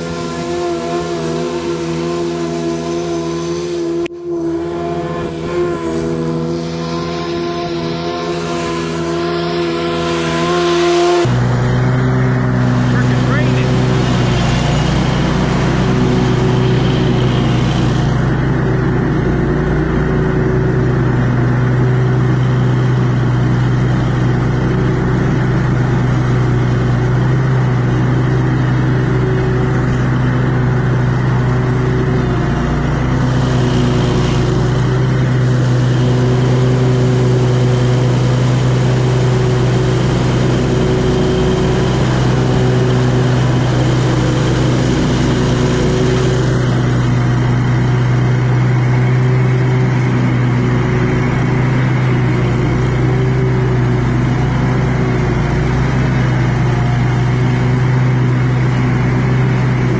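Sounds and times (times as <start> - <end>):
mower blades spinning: 0.0 - 59.9
riding mower engine running: 0.0 - 59.9.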